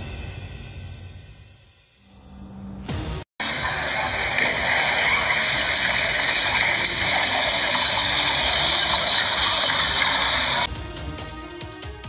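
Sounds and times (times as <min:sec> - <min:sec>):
loud steady rushing noise: 0:03.4 - 0:10.7.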